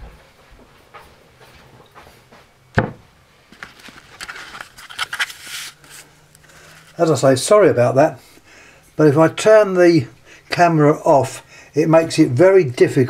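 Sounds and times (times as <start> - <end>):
faint steady hum: 0.0 - 13.0
sharp knock: 2.8 - 3.0
camera handling rustling: 3.5 - 7.0.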